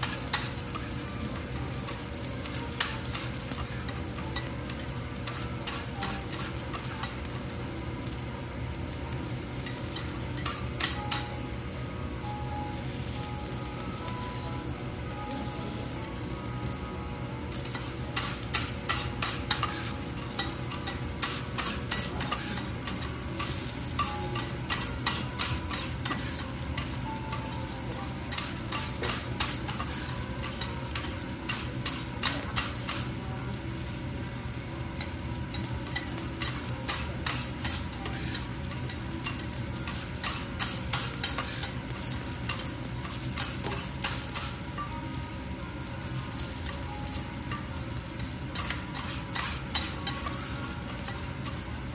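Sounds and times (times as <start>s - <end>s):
garlic sizzling in fat: 0.0s - 51.9s
metal spatulas clacking on griddle: 4.4s - 7.2s, 17.6s - 27.0s, 28.3s - 33.0s, 35.6s - 44.5s, 48.5s - 51.6s.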